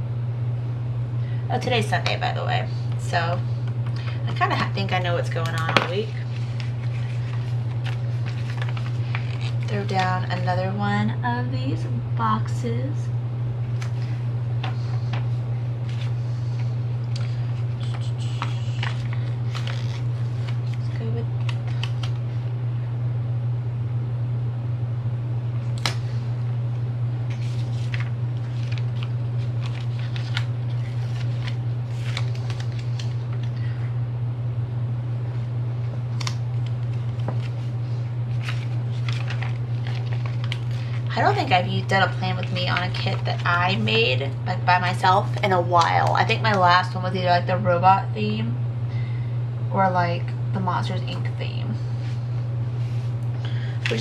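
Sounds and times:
low hum: 0.0 - 54.0
paper rustling: 4.0 - 10.4, 13.8 - 22.2, 27.3 - 33.6, 36.2 - 43.6.

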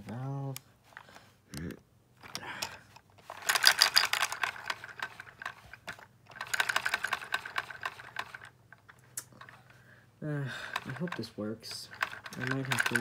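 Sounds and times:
toy engine clattering clicks: 2.2 - 9.6, 10.6 - 13.0.

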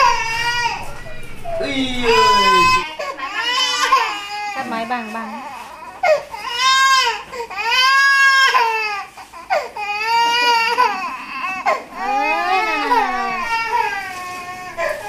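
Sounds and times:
baby crying: 0.0 - 4.7, 5.5 - 15.0.

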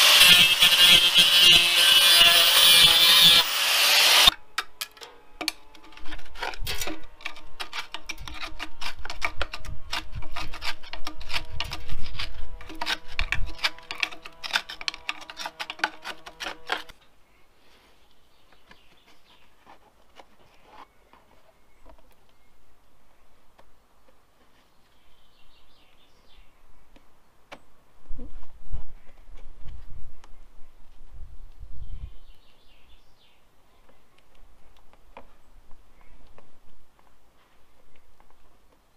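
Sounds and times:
angle grinder grinding steel: 0.0 - 4.4
hand tool scraping and tapping metal: 4.2 - 17.0.

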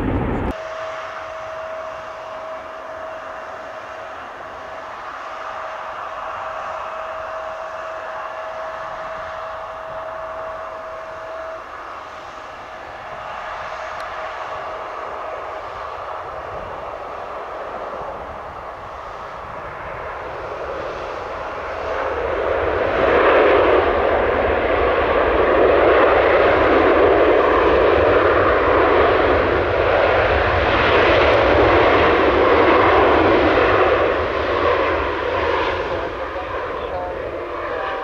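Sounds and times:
jet engines roaring: 0.0 - 38.0.

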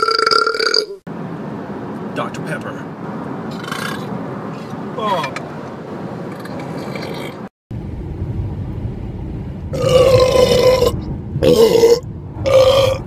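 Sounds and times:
man belching loudly: 0.0 - 1.0, 9.8 - 13.0.

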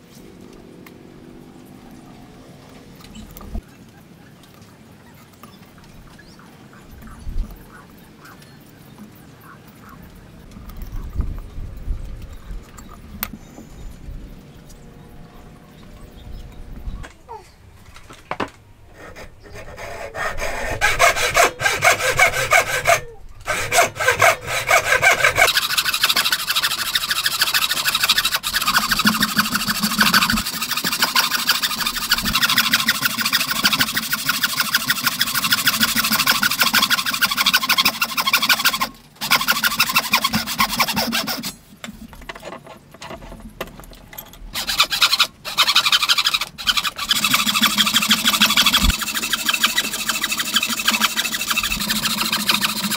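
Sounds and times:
hand saw cutting wood: 18.9 - 41.6, 44.6 - 52.9.

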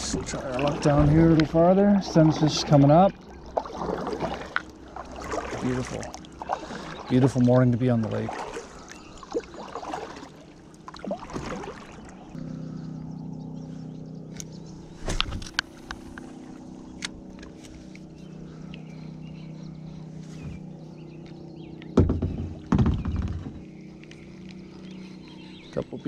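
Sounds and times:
low engine-like hum: 0.0 - 26.0
loud thumps: 22.0 - 23.6.

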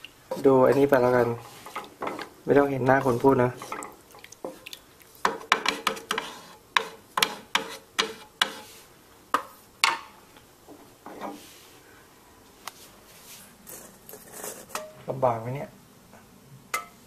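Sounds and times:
spatula scraping frying pan: 0.3 - 4.6, 5.2 - 8.9.

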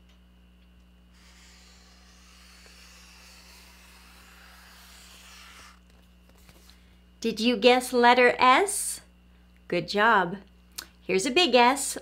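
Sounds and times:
marker scratching on board: 1.2 - 6.0.

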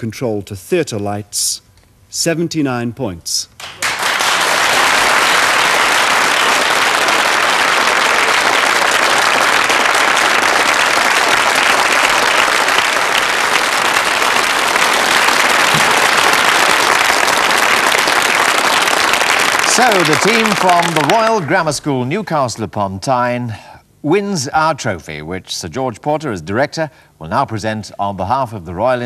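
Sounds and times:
studio audience applauding: 3.6 - 22.1.

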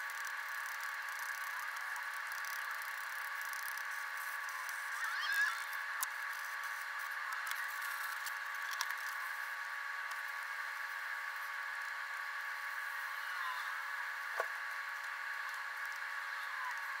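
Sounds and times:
steady high hum: 0.0 - 17.0.

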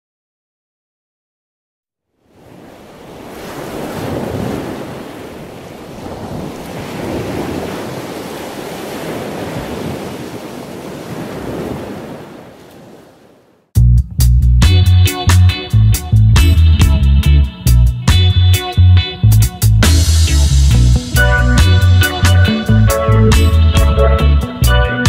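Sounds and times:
ocean waves washing in: 2.2 - 13.7.

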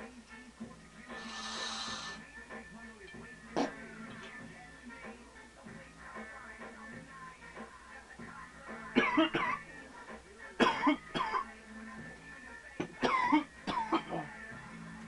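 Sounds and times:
quiet music: 0.0 - 15.0.

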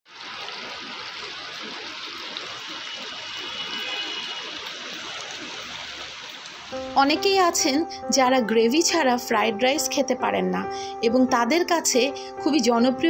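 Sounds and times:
sauce bubbling and sizzling in pan: 0.1 - 7.8.

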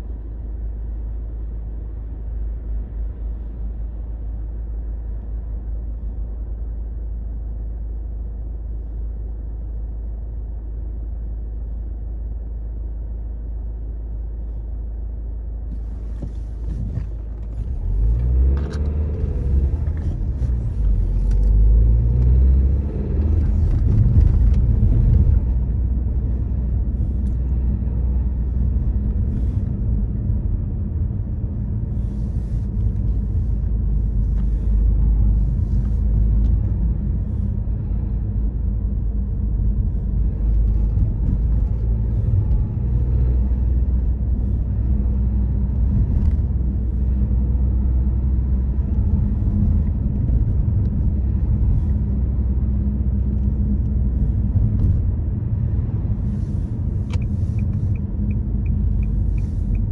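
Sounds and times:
car road and engine noise: 0.0 - 59.9
turn indicator ticking: 56.8 - 59.9.

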